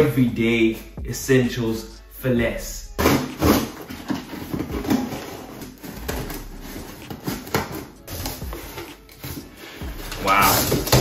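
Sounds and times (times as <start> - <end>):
cardboard rustle: 3.1 - 11.0
scissors cutting packing tape: 4.8 - 9.4.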